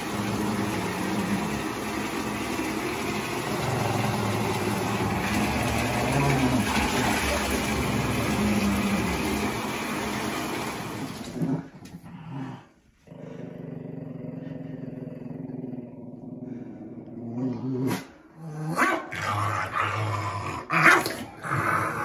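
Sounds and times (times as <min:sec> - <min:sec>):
small dog growling: 0:03.3 - 0:09.6.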